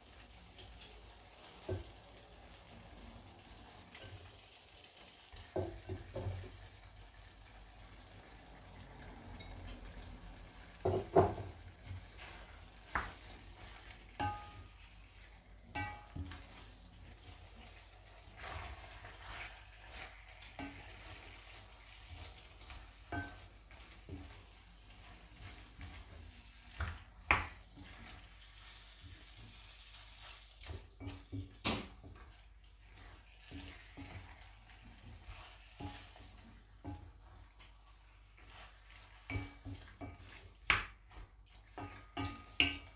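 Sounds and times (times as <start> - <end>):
low sizzle: 0.0 - 42.9
spoon stirring food in pot: 10.8 - 42.9
spoon knocking against pot: 15.7 - 16.3, 41.8 - 42.9.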